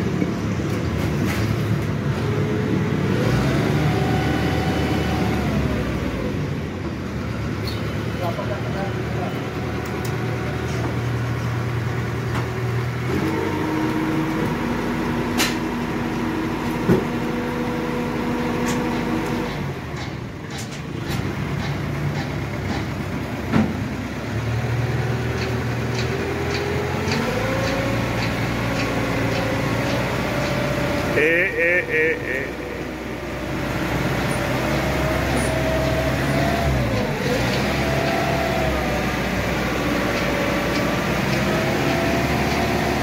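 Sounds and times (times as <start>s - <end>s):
crane engine revving: 0.0s - 43.0s.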